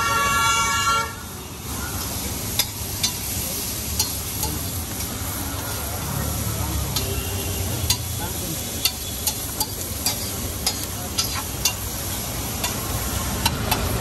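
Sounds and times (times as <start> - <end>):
onions sizzling: 1.3 - 14.0
metal spatula clinking on griddle: 2.5 - 3.3, 3.9 - 4.7, 7.9 - 8.2, 8.8 - 11.8, 12.6 - 12.8.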